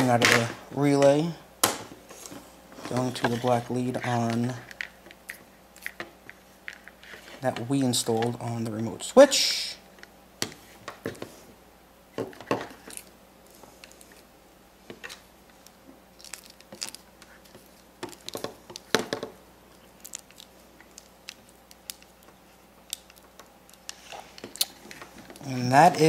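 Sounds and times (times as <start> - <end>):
wires clicking and rustling: 2.1 - 8.7, 12.2 - 14.3, 14.9 - 26.0.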